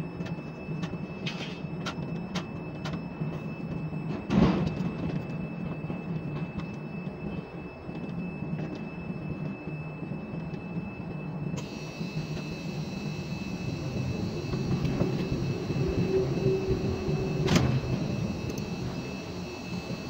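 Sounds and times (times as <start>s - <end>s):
crane machinery drone and whine: 0.0s - 20.0s.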